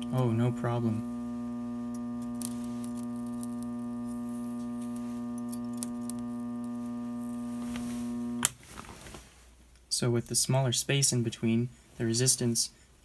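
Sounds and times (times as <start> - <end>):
transformer humming: 0.0 - 8.5
faint sparking crackles: 0.0 - 9.3.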